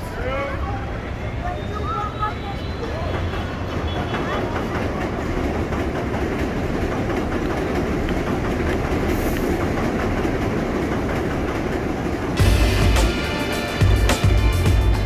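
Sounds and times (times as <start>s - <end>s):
subway train on steel viaduct: 0.0s - 15.0s
music: 12.4s - 15.0s.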